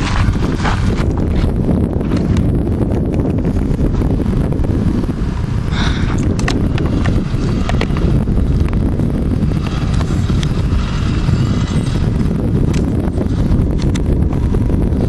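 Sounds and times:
wind buffeting microphone: 0.0s - 15.0s
sharp clicks and taps: 6.2s - 8.8s.

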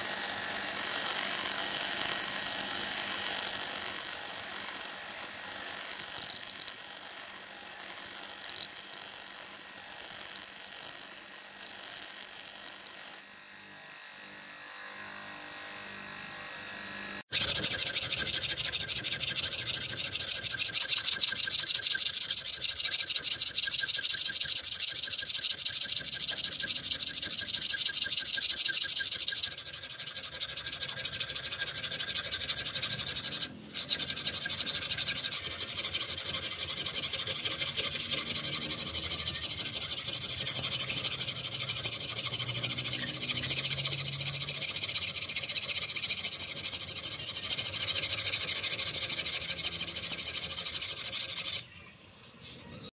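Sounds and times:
hand file rasping on steel: 17.3s - 51.6s.

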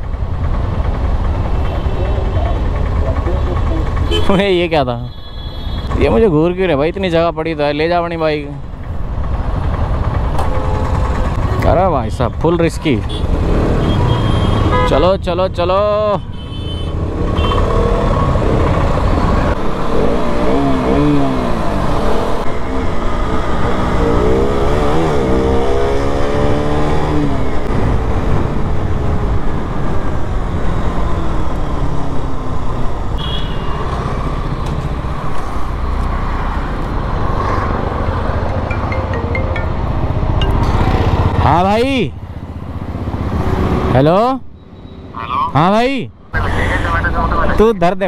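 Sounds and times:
motorcycle engine accelerating: 17.0s - 29.4s, 39.8s - 41.6s.

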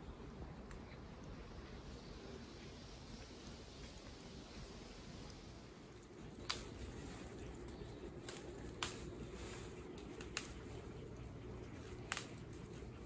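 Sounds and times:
foliage rustling: 5.6s - 13.0s
leaves snapping: 6.0s - 13.0s.

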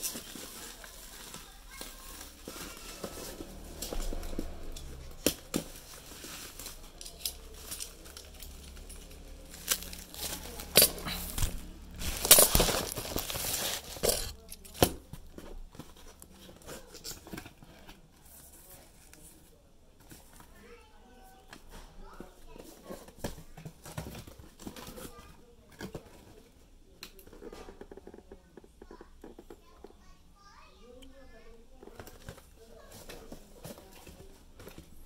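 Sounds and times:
plastic bag crinkling: 0.0s - 4.6s, 5.2s - 14.8s
cardboard box handled: 9.6s - 14.2s.

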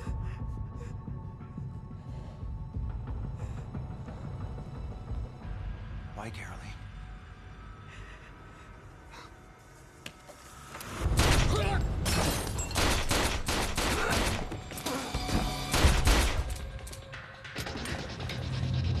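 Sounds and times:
rapid pistol gunfire: 12.8s - 14.5s, 15.7s - 16.5s.

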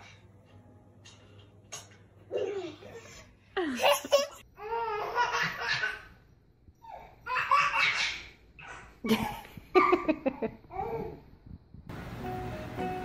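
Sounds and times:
baby laughing: 3.7s - 6.1s, 6.9s - 11.2s.

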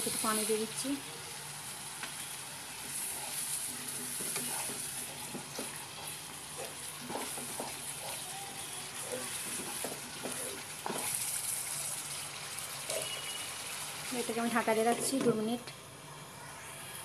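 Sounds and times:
paste sizzling in a pan: 0.0s - 15.6s
wooden spatula scraping a pan: 2.8s - 11.4s.

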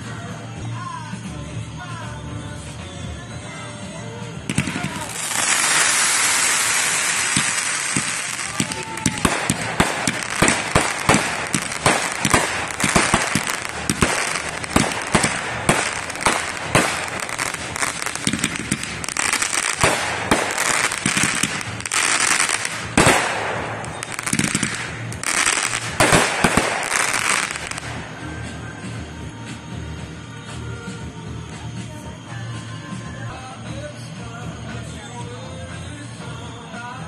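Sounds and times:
fireworks bangs and pops: 4.4s - 29.6s
fireworks crackling: 4.4s - 37.0s.

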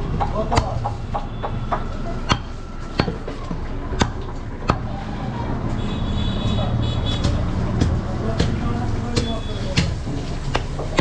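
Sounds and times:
cleaver chopping meat on wood: 0.1s - 5.0s, 7.0s - 11.0s.

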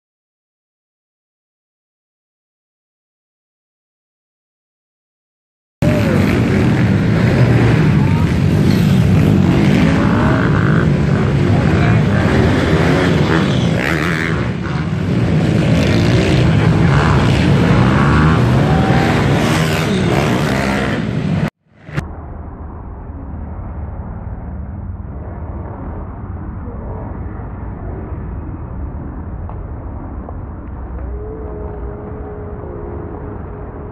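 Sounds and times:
small engines revving: 5.8s - 21.5s
voices: 5.8s - 21.5s, 25.5s - 33.9s
muffled engine noise: 21.2s - 33.9s.

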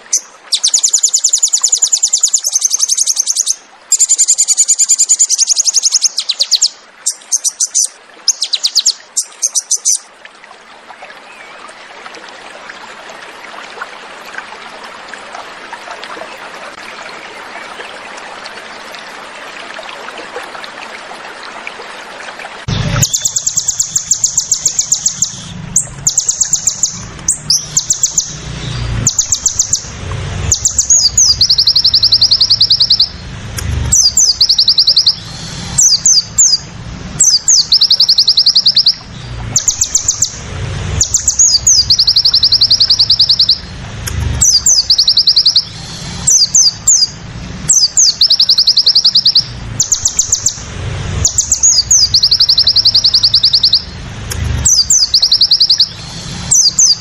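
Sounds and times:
bird high trill bursts: 34.0s - 36.3s, 51.3s - 53.9s, 54.7s - 57.0s.

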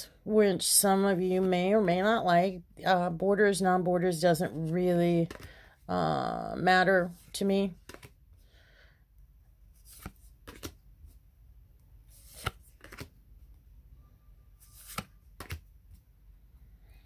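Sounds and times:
cards snapping and sliding: 7.8s - 8.2s, 9.8s - 10.8s, 12.1s - 13.1s, 14.7s - 15.7s.

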